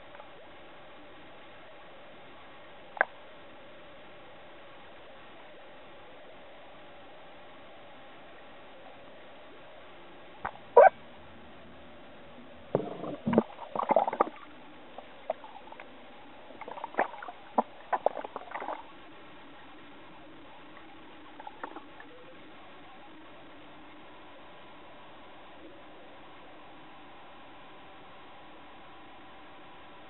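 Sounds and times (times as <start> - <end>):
low hiss: 0.0 - 30.0
water splashing and gurgling: 12.7 - 22.6.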